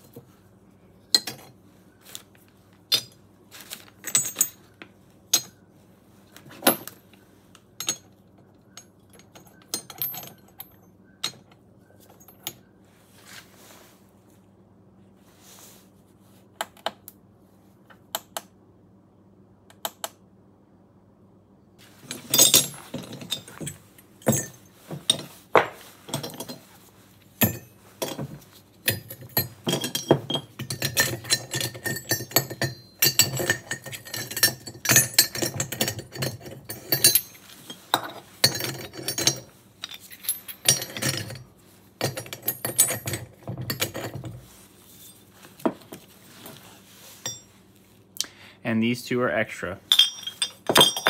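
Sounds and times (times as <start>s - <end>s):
aluminum scrap clinking: 27.4s - 41.4s, 49.9s - 51.0s.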